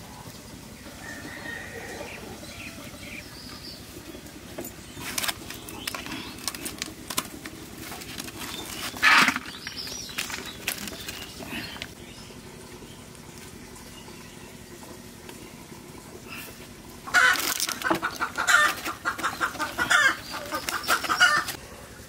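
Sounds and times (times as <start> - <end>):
palm leaves rustling: 1.0 - 12.0, 16.3 - 21.6.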